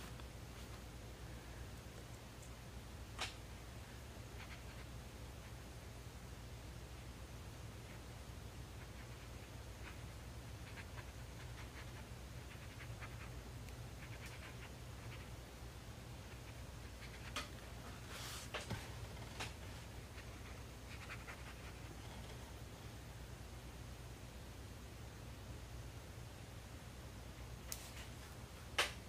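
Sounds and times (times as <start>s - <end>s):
low steady hum: 0.0s - 29.0s
brush scratching on paper: 20.1s - 22.2s.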